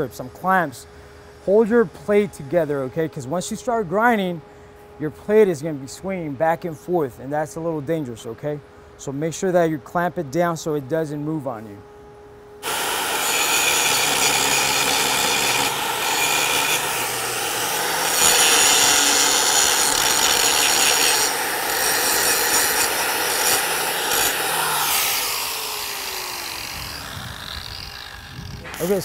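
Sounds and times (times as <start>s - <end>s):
angle grinder grinding steel: 12.6s - 29.0s
grinder motor winding down: 12.6s - 29.0s.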